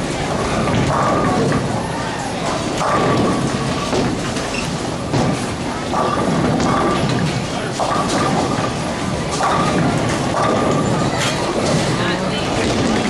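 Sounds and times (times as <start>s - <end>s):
bowling alley machinery: 0.0s - 13.0s
bowling balls rolling on lanes: 0.0s - 13.0s
bowling pins clattering: 0.0s - 13.0s.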